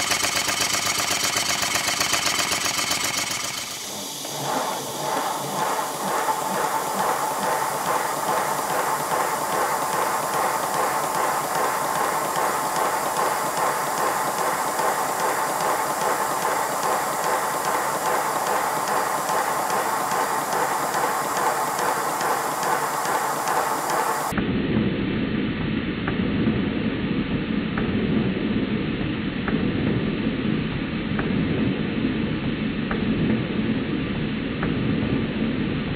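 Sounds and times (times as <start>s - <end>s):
steam hissing: 0.0s - 24.4s
steam exhaust beats: 0.0s - 24.9s.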